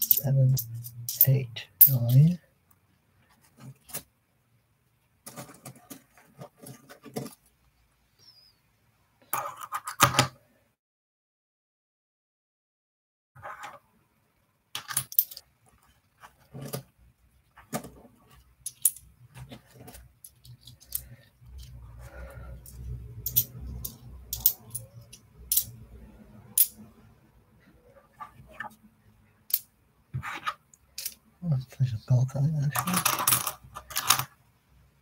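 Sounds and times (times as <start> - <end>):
small metal objects clinking: 0.0 - 2.4, 14.8 - 15.4, 18.6 - 19.1, 19.8 - 21.7, 22.6 - 25.8, 31.0 - 31.2.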